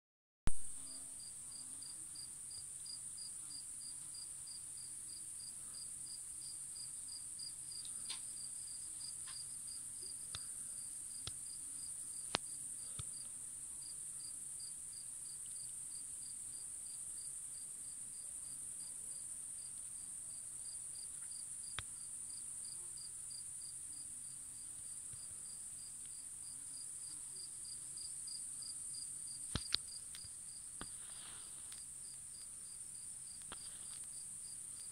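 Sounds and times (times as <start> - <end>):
insect chirping in regular pulse: 4.5 - 18.2, 19.6 - 34.9
faint clicks: 29.5 - 32.5.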